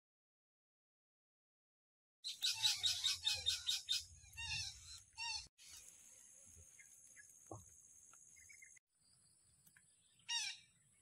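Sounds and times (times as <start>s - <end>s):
parakeets calling: 2.2s - 5.9s
steady high-pitched hiss: 5.6s - 8.7s.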